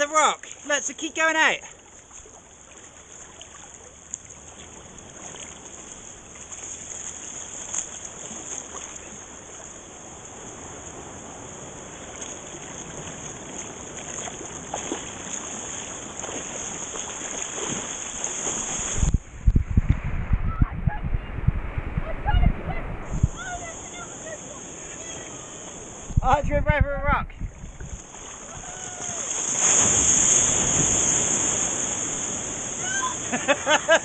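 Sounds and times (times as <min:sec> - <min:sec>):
seawater sloshing around wading people: 0:00.0 - 0:19.1, 0:21.2 - 0:26.2, 0:27.5 - 0:34.0
wave coming in: 0:09.8 - 0:26.4, 0:27.3 - 0:34.0
steady high hiss: 0:23.0 - 0:26.2.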